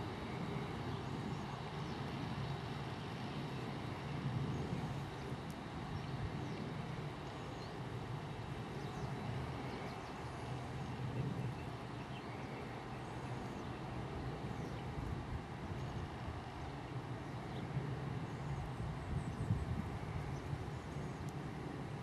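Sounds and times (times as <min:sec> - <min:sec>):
jet engines low rumble: 0:00.0 - 0:22.0.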